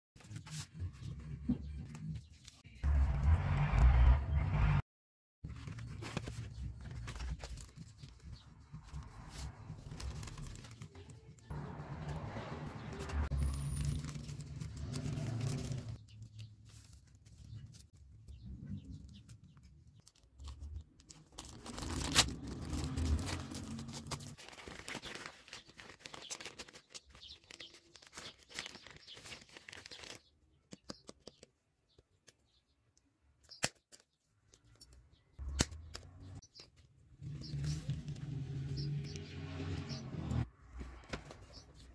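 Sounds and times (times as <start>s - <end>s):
plastic bag rustling and crinkling: 20.0s - 30.2s.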